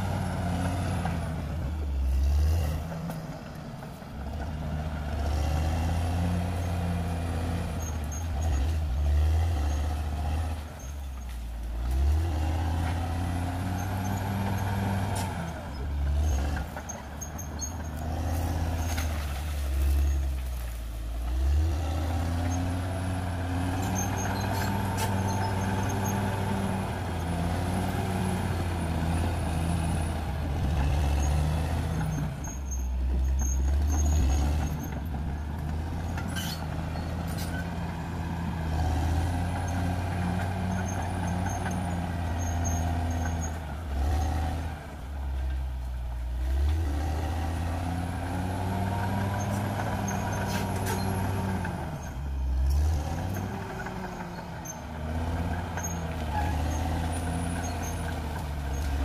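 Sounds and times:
bulldozer diesel engine under load: 0.0 - 59.0.

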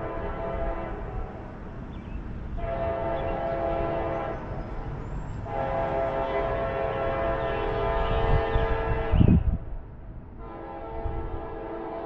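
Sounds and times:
train air horn blasts: 0.0 - 1.4, 2.6 - 4.6, 5.4 - 9.4, 10.4 - 12.0
low train rumble: 0.0 - 12.0.

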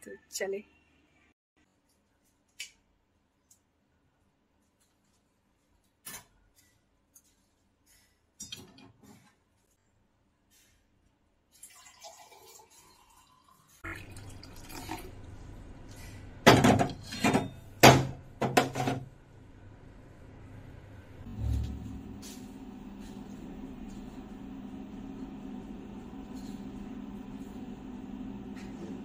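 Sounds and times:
drink trickling into glass: 11.6 - 15.1.

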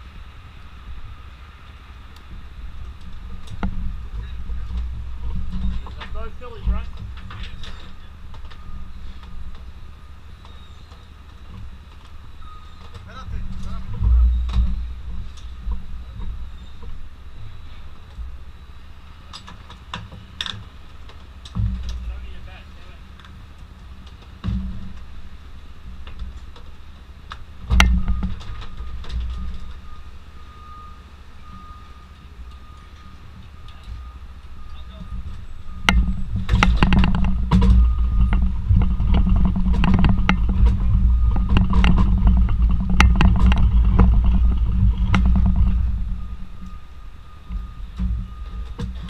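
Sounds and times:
low engine rumble: 0.0 - 49.0
reversing alarm beeping: 5.5 - 11.3, 12.2 - 19.3, 27.7 - 49.0
horse hooves knocking on truck floor: 35.0 - 46.7.

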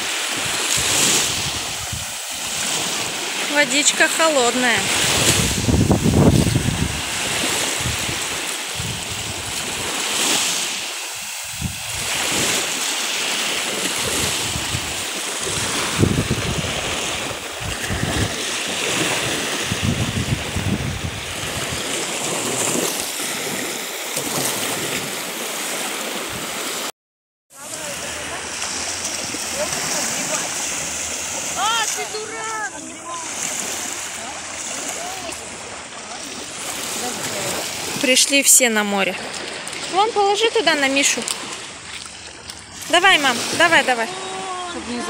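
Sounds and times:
waves washing onto sand: 0.0 - 26.9, 27.5 - 45.0
wind buffeting microphone: 0.4 - 2.9, 4.8 - 10.0, 11.4 - 12.5, 14.0 - 22.8.

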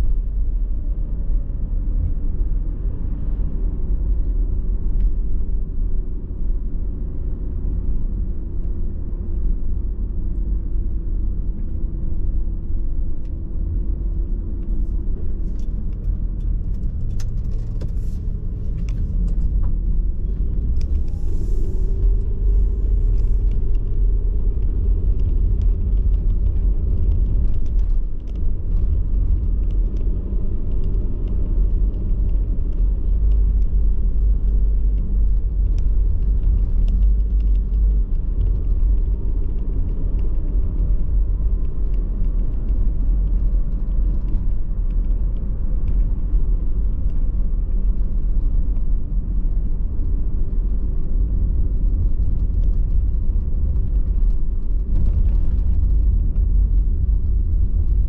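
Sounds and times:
car cabin road noise: 12.3 - 58.0.

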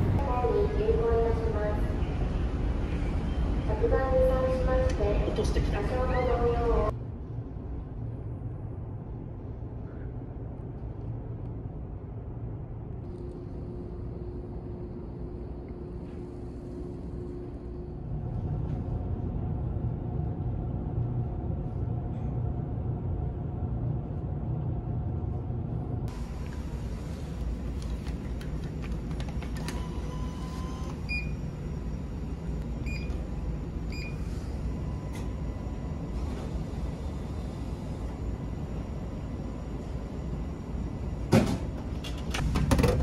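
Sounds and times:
ferry engines low rumble: 0.0 - 42.5
vending machine hum: 12.0 - 43.0.

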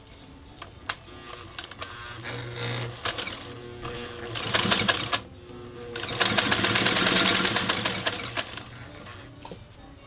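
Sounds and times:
sewing machine stitching: 1.4 - 5.2, 5.9 - 8.9.

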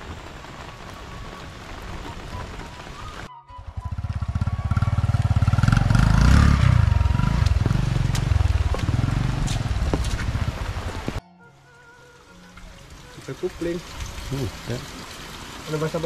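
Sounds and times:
small motorcycle engine: 3.8 - 9.6.

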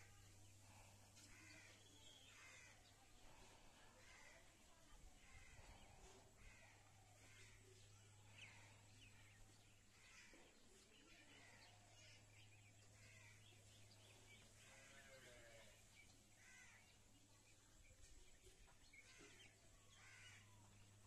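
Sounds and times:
distant birds calling: 0.0 - 10.6, 11.2 - 17.0.

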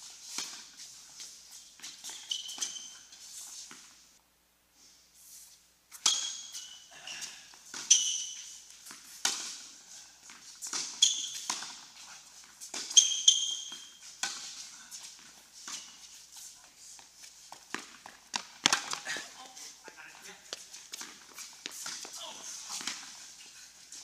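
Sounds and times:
tennis ball hitting racket strings: 7.7 - 9.7, 10.3 - 11.9, 12.6 - 14.6, 17.5 - 19.3, 20.8 - 23.2
ball bouncing on hard court: 17.5 - 19.2, 22.8 - 23.1.

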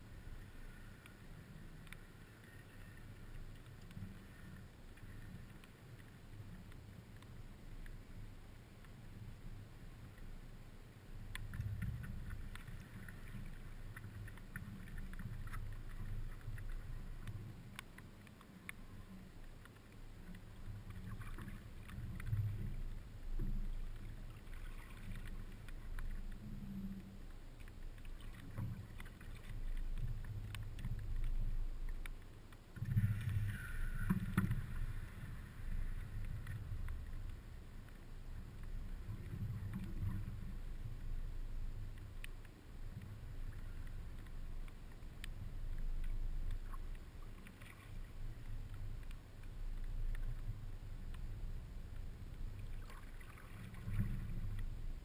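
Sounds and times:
light clicks: 0.7 - 8.0, 11.2 - 54.7
water splashing: 11.4 - 40.7, 45.9 - 49.2, 52.6 - 54.8
water lapping against paddleboard: 11.8 - 38.0, 52.6 - 54.7.

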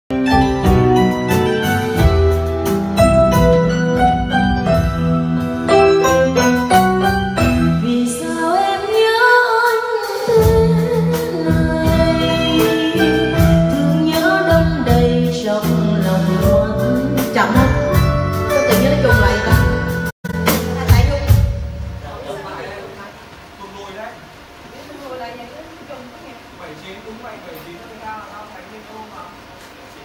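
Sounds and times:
live band playing: 0.1 - 23.5
woman singing through microphone: 7.7 - 18.0.

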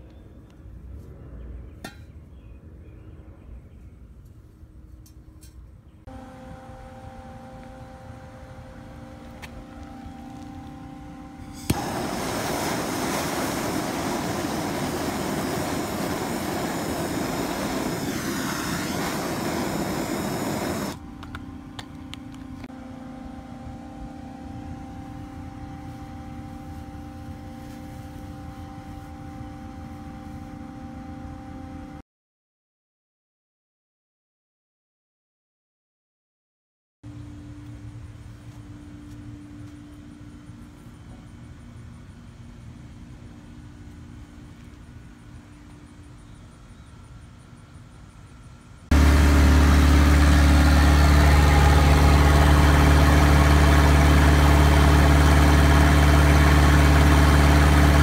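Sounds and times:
steady hum: 4.0 - 32.0, 37.1 - 58.0
gas torch hissing: 11.4 - 21.0
gas torch lighting pop: 11.5 - 21.9.

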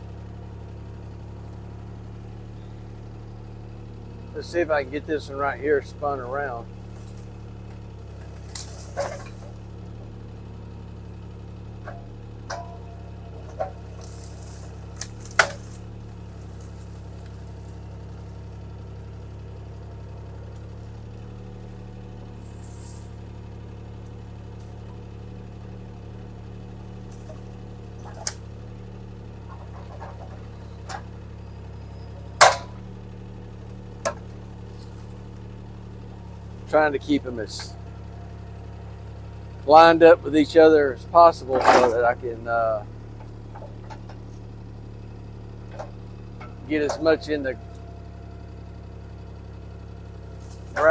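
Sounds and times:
diesel engine running: 0.0 - 50.9
knocks and clanks of wood and metal: 6.6 - 10.2, 11.7 - 23.2, 26.4 - 35.5, 37.4 - 38.1, 41.0 - 49.2, 50.0 - 50.9.

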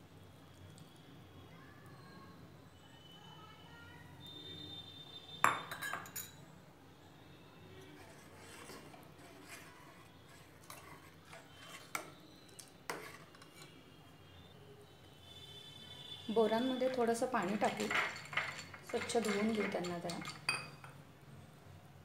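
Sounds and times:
spoon clinking against metal pot: 5.4 - 6.4, 16.8 - 21.0.

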